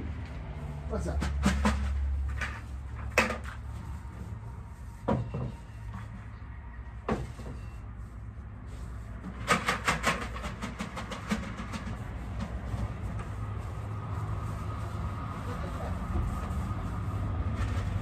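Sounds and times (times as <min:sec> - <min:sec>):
rattling clicks and clatters: 0:09.3 - 0:12.9.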